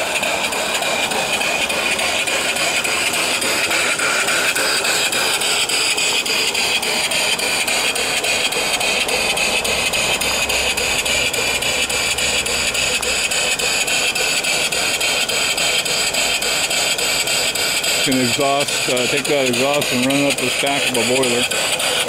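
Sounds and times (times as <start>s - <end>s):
steam engine exhaust beat: 0.0s - 22.0s
steam hissing: 0.0s - 22.0s.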